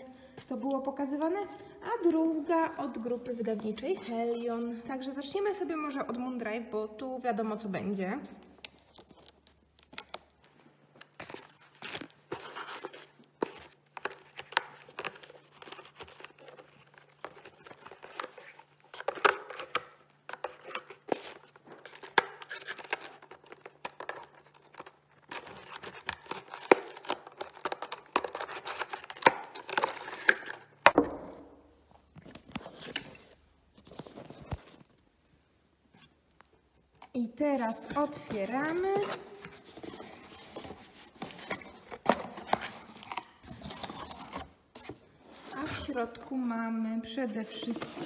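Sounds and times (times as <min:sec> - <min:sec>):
packaging crackles: 0:08.6 - 0:30.8
packaging tearing and rustling: 0:08.6 - 0:30.9, 0:37.6 - 0:46.3.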